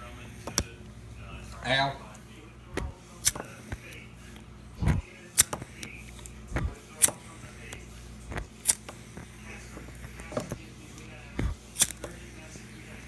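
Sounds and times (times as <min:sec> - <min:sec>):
lighter clicking: 0:03.2 - 0:04.0, 0:05.4 - 0:10.6, 0:11.4 - 0:12.2.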